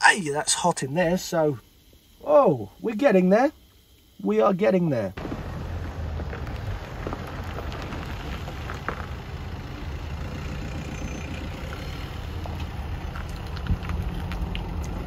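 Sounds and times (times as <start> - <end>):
car engine running at low revs: 5.2 - 15.0.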